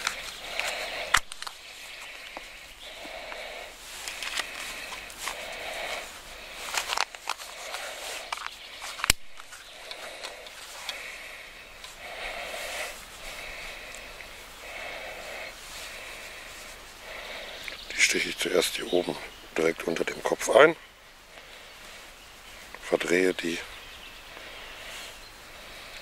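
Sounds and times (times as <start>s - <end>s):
faint fiddling with plastic box: 0.0s - 12.0s.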